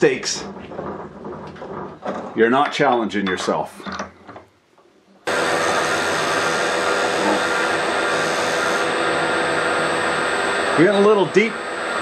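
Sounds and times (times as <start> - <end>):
milling machine whine: 5.2 - 12.0.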